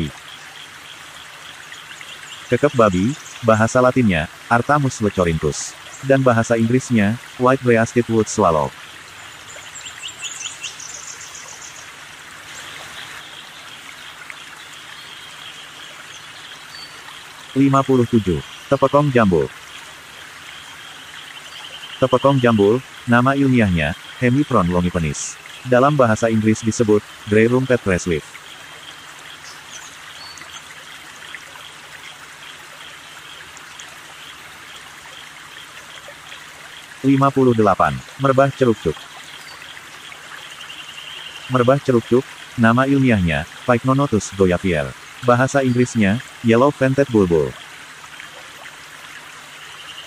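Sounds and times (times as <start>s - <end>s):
stream water rushing: 0.0s - 50.0s
bird chirping: 9.2s - 11.9s.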